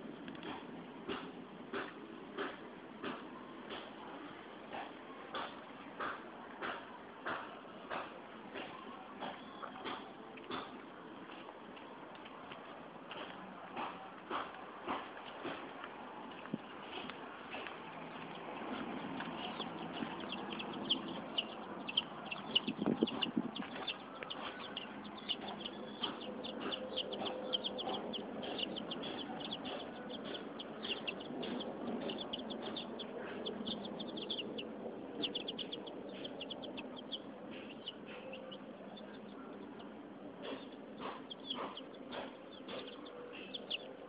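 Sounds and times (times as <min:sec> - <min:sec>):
low rumbling noise: 0:10.2 - 0:41.0
chickens chirping and peeping: 0:16.5 - 0:44.0.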